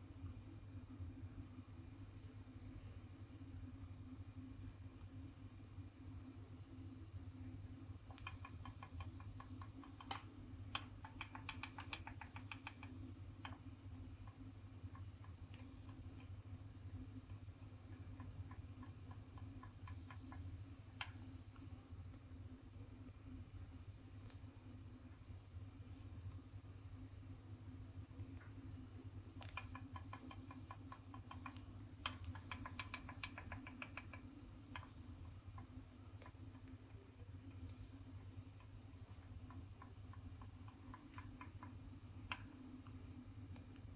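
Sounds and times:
wall clock mechanism clicking: 7.7s - 22.3s, 29.2s - 43.9s.

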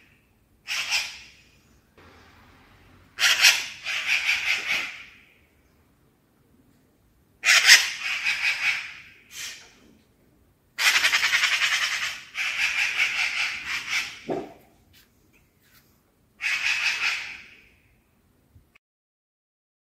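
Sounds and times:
magpie rattling chatter: 0.6s - 1.5s, 3.2s - 5.2s, 7.4s - 9.5s, 10.8s - 14.4s, 16.4s - 17.6s.

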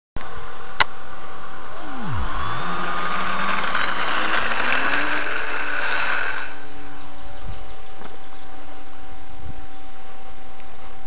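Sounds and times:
steady hiss: 0.2s - 11.0s
electric motor whining: 1.3s - 7.5s.

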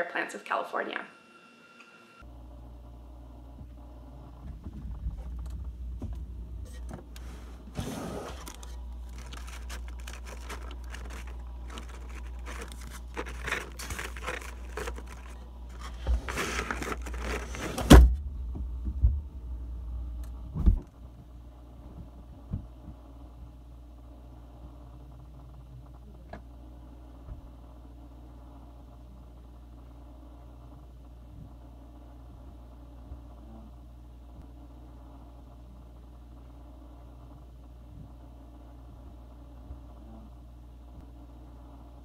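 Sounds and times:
foil pouches crinkling: 8.3s - 17.9s.

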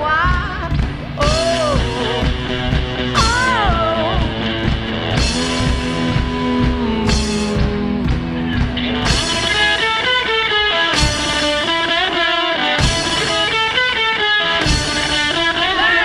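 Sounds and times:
person singing: 0.0s - 9.8s
drum kit beat: 0.0s - 16.0s
electric guitar: 0.0s - 16.0s.

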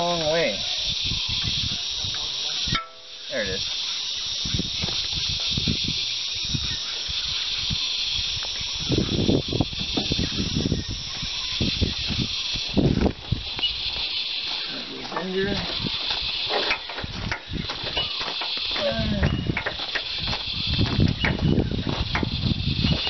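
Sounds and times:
high-pitched insect chorus: 0.0s - 23.0s
low rumbles and bumps: 19.1s - 23.0s.

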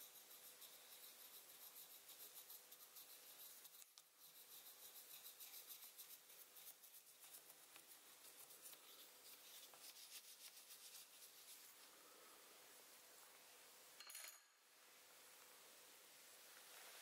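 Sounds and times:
pencil scratching on paper: 0.0s - 11.8s.

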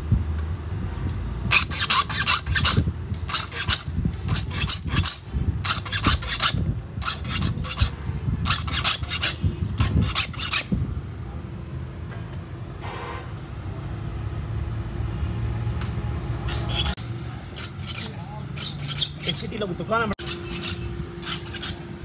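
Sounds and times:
metal file rasping on saw teeth: 1.5s - 10.7s, 16.5s - 21.8s.

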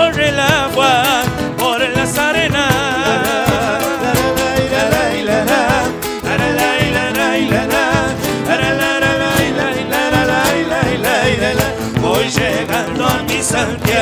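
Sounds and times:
acoustic guitars strumming: 0.0s - 14.0s.

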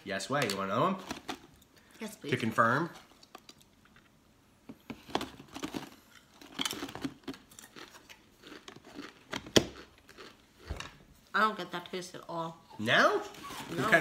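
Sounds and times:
person chewing crunchy chips: 4.9s - 10.7s.

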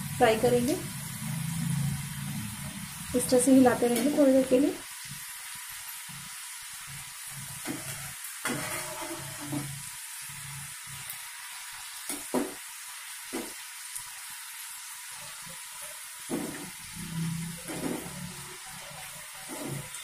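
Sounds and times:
fries sizzling in oil: 0.0s - 20.0s.

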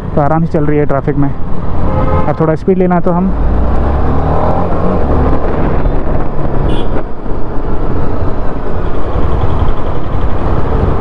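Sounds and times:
motorcycle engine accelerating: 3.4s - 11.0s
wind noise: 3.4s - 11.0s.

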